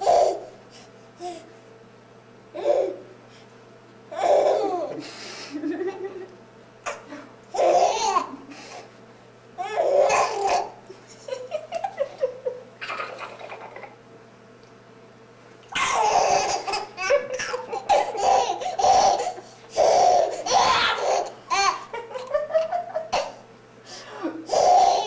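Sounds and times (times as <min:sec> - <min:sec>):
baby laughing: 0:00.0 - 0:00.5, 0:04.1 - 0:05.0, 0:06.9 - 0:08.5, 0:09.6 - 0:14.0, 0:15.8 - 0:23.4, 0:24.4 - 0:25.0.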